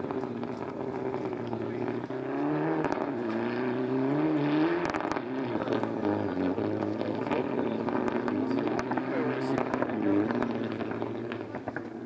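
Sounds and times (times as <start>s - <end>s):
rally car engine revving: 0.0s - 12.0s.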